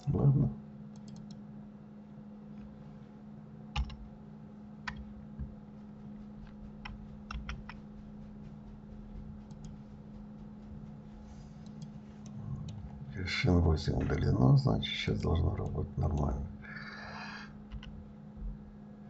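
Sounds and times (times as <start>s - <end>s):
low electrical hum: 0.0s - 19.0s
keyboard and mouse clicks: 0.9s - 1.4s, 3.8s - 4.0s, 4.8s - 5.1s, 6.4s - 7.8s, 9.4s - 9.9s, 11.6s - 12.8s, 17.7s - 18.0s.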